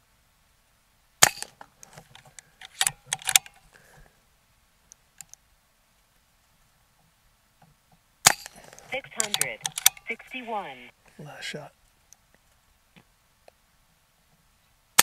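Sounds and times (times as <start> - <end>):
air rifle cocking clicks: 2.6 - 3.6, 9.2 - 10.1.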